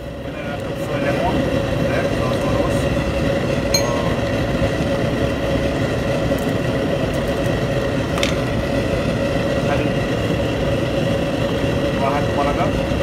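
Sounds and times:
kitchen equipment hum: 0.9 - 11.0
short clink: 3.8 - 4.4.

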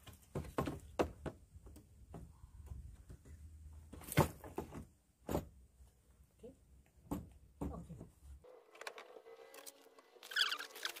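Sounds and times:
short high squeak: 10.2 - 11.0.

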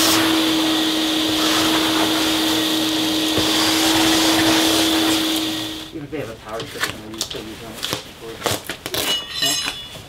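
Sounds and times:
vacuum cleaner running: 0.0 - 6.0.

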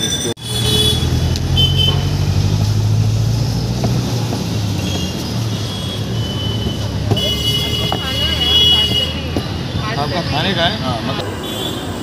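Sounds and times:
vehicle engine rumbling: 0.0 - 11.4.

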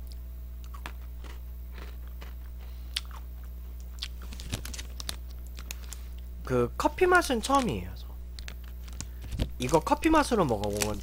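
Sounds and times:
chewing and crunching biscuit: 0.0 - 6.3, 8.4 - 11.0
plastic wrapper crackling: 4.1 - 6.0, 8.4 - 11.0.

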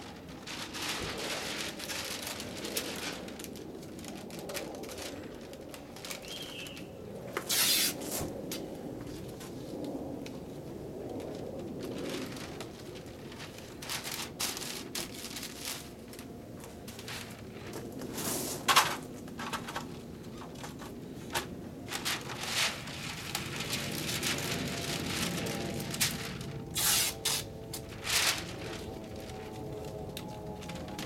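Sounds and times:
paper and tape crinkling: 0.0 - 10.4, 11.0 - 31.0
sharp crackles: 0.2 - 8.7, 21.9 - 31.0.

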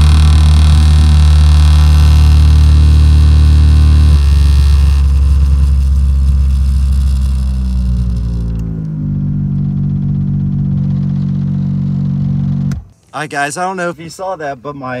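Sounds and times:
subwoofer bass test tone: 0.0 - 12.9
buzzy rattle of loose screw: 4.2 - 8.6.

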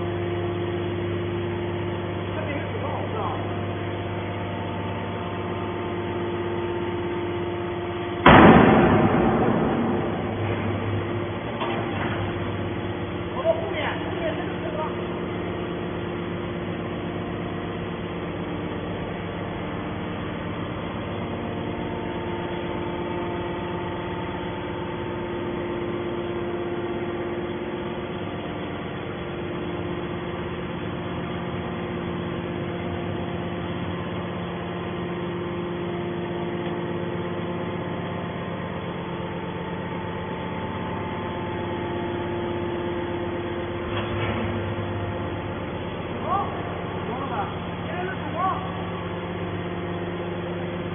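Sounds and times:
hydraulic pump hum: 0.0 - 50.9
machine clunk: 8.2 - 12.7, 43.8 - 44.8.

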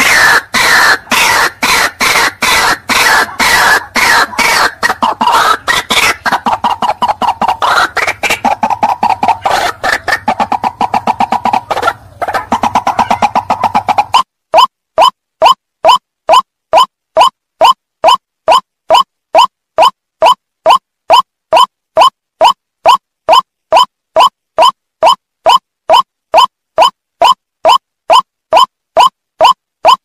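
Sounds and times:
bird calling harsh notes: 0.0 - 30.0.

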